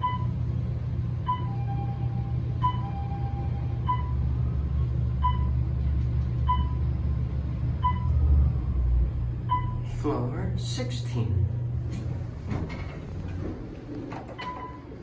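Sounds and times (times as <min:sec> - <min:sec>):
elevator running low rumble: 0:00.0 - 0:15.0
short electronic beeps: 0:07.8 - 0:08.2.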